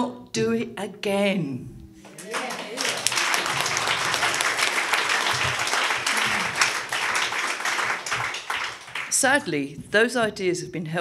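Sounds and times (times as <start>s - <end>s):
audience applauding: 2.1s - 9.4s.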